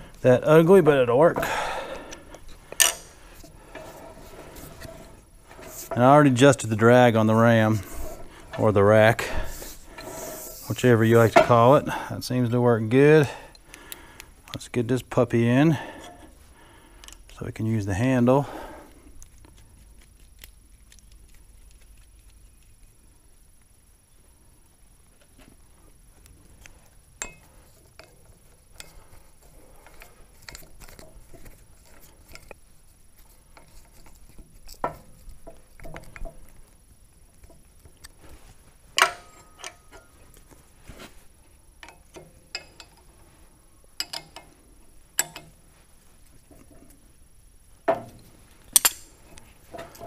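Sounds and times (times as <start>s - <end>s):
metal clinks and knocks: 2.6s - 6.6s, 27.2s - 29.0s, 39.0s - 40.2s, 41.8s - 43.1s, 44.0s - 44.6s, 45.2s - 45.6s
sharp metal clanks: 2.8s - 3.2s.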